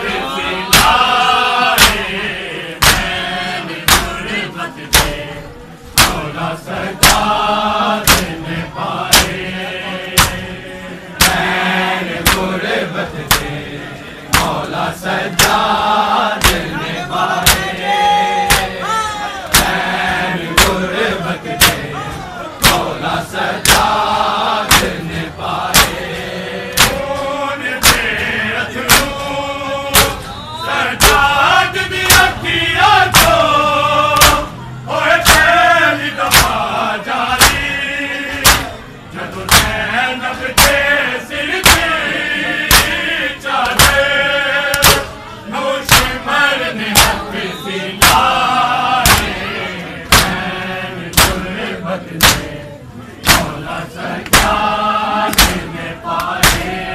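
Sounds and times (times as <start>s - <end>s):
lament chanted: 0.0s - 56.9s
hands slapping bare chests: 1.8s - 2.1s, 2.8s - 3.2s, 3.8s - 4.2s, 6.0s - 6.2s, 7.0s - 7.4s, 8.0s - 8.4s, 9.1s - 9.4s, 10.2s - 10.4s, 11.2s - 11.5s, 12.2s - 12.5s, 13.2s - 13.6s, 14.3s - 14.7s, 15.4s - 15.7s, 16.4s - 16.8s, 17.4s - 17.8s, 18.5s - 18.8s, 19.5s - 19.8s, 20.5s - 20.8s, 21.6s - 21.8s, 22.6s - 22.9s, 23.6s - 24.0s, 24.6s - 25.0s, 25.7s - 26.1s, 26.7s - 28.2s, 28.8s - 29.2s, 29.9s - 30.3s, 31.0s - 31.3s, 33.1s - 33.4s, 34.2s - 34.5s, 35.2s - 35.5s, 36.2s - 36.6s, 37.3s - 37.7s, 38.4s - 38.7s, 39.5s - 39.8s, 40.5s - 40.8s, 41.6s - 42.0s, 42.7s - 43.0s, 43.6s - 44.1s, 44.7s - 45.1s, 45.9s - 46.2s, 46.9s - 47.2s, 48.0s - 48.3s, 49.0s - 49.4s, 50.0s - 50.4s, 51.1s - 51.4s, 52.2s - 52.5s, 53.2s - 53.6s, 54.2s - 54.6s, 55.3s - 56.8s.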